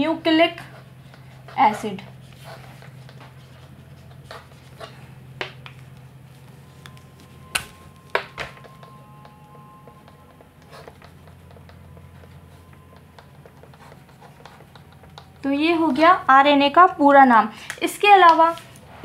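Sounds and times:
steady low hum: 0.0s - 19.0s
marker writing on a whiteboard: 0.3s - 6.5s, 10.0s - 16.0s.

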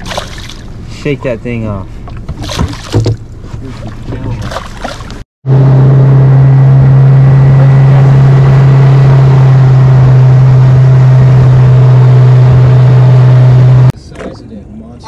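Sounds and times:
boat engine droning: 5.4s - 14.0s.

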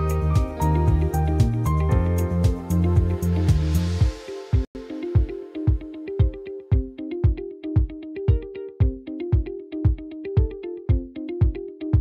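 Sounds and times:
electronic music: 0.0s - 9.0s
steady kick drum beat: 0.0s - 12.0s.

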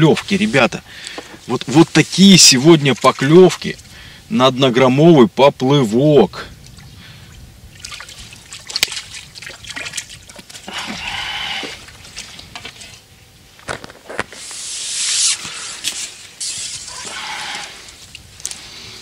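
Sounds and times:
fish splashing in water: 7.7s - 12.8s
rush of water: 7.7s - 13.0s.

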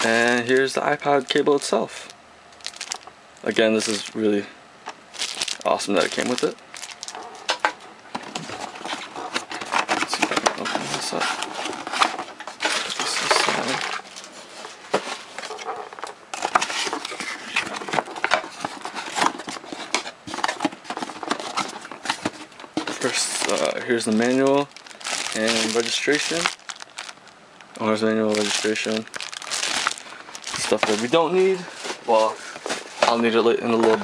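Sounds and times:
cardboard scraping and rustling: 5.2s - 27.1s, 27.8s - 34.0s.

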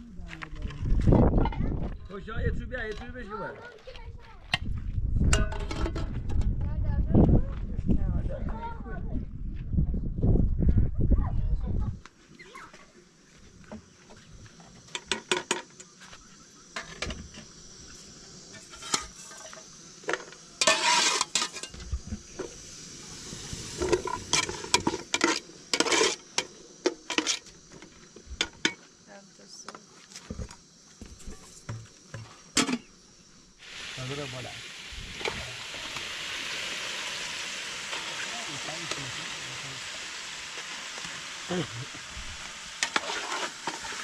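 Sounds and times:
metal cookware clattering: 5.3s - 6.1s, 18.6s - 21.8s
onions sizzling in oil: 12.3s - 44.0s
loud hiss burst: 16.6s - 28.8s, 30.5s - 44.0s.

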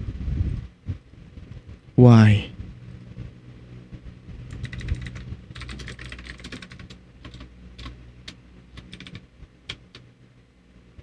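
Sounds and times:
computer keyboard typing: 4.5s - 8.0s, 8.8s - 10.0s.

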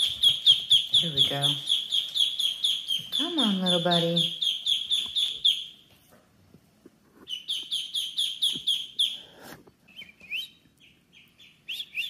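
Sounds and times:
ducklings peeping: 0.0s - 6.0s, 7.2s - 12.0s.

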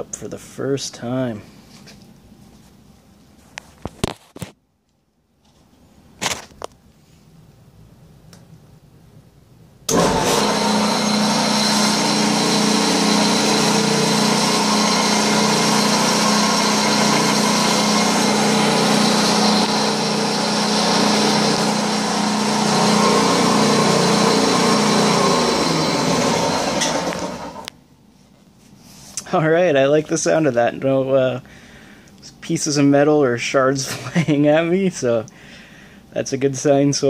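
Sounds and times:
thickness planer running: 9.9s - 27.7s.

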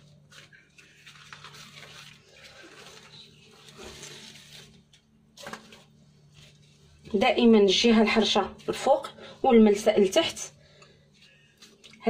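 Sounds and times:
pastry sheets rustling and crackling: 0.0s - 9.1s.

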